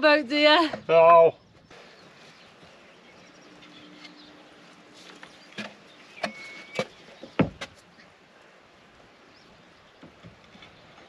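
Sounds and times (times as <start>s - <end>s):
knocks on wooden plank: 5.6s - 7.8s.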